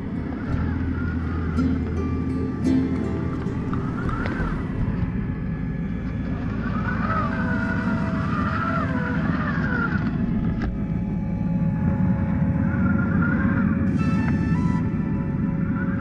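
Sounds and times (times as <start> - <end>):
low rumble: 0.0 - 16.0
toy car motor whining: 6.6 - 10.7.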